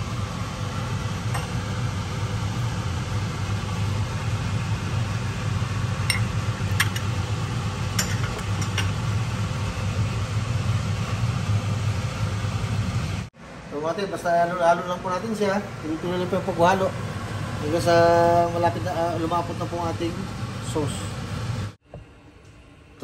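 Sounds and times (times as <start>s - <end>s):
kitchen fan humming: 0.0s - 23.0s
utensils tapping a metal pot: 8.0s - 9.0s.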